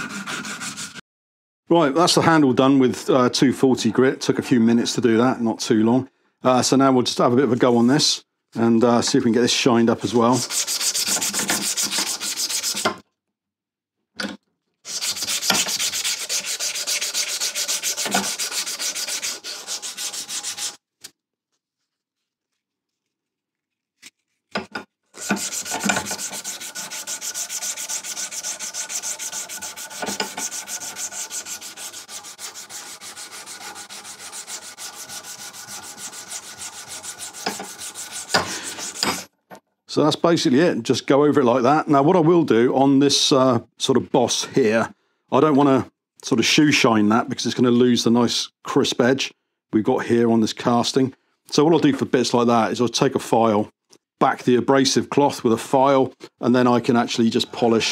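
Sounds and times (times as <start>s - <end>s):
abrasive paper rasping on metal: 10.1s - 12.9s, 14.9s - 20.8s, 25.2s - 39.3s.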